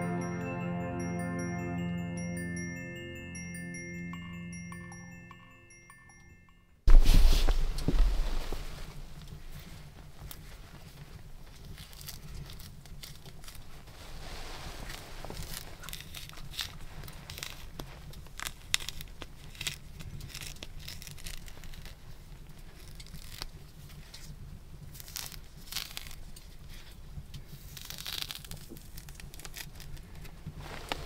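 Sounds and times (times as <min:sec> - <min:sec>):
mandarin rind tearing: 0:11.6 - 0:13.8, 0:14.9 - 0:22.0, 0:22.8 - 0:24.2, 0:24.9 - 0:26.7, 0:27.6 - 0:30.0.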